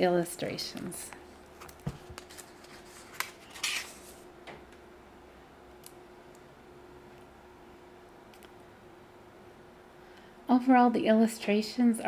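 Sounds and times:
faint steady hum: 0.0 - 12.0
book being handled: 1.5 - 4.2.

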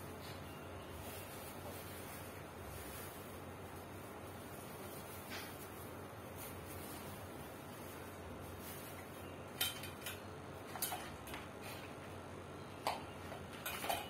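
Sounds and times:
clicks of fan parts handled: 9.5 - 11.6.

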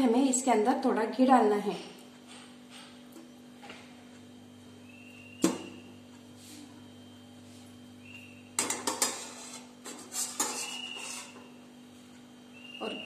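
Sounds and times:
spoon clinking and scraping pan: 8.6 - 11.4.

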